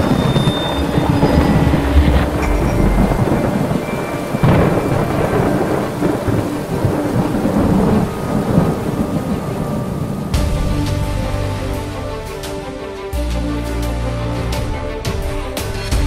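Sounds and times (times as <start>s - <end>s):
thunder rumbling: 0.0s - 11.6s
steady rain: 0.0s - 14.5s.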